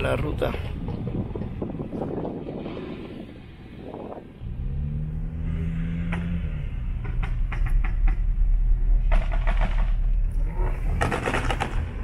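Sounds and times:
sports car engine accelerating: 0:04.4 - 0:08.6.

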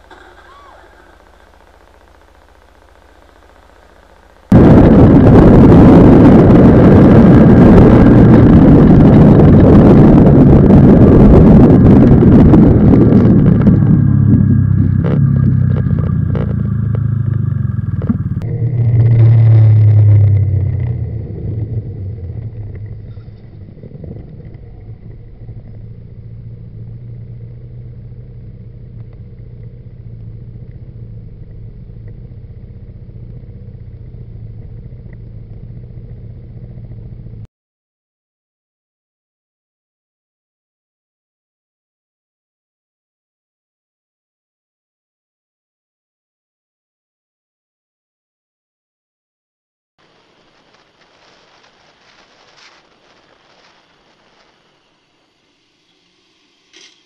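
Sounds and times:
loud even road noise: 0:00.0 - 0:37.5
low engine note: 0:00.0 - 0:37.5
quiet traffic hum: 0:00.0 - 0:37.5, 0:50.0 - 0:57.0.

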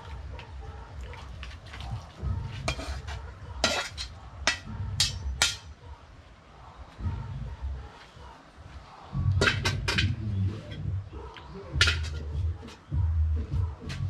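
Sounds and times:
metal utensils clinking: 0:02.7 - 0:05.7, 0:11.8 - 0:12.2.

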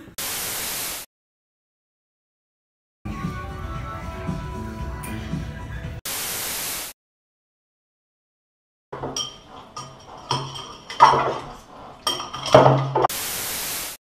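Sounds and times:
static hiss: 0:00.2 - 0:01.1, 0:06.1 - 0:07.0, 0:13.1 - 0:14.0
cutlery clattering against a bowl: 0:09.0 - 0:13.1.

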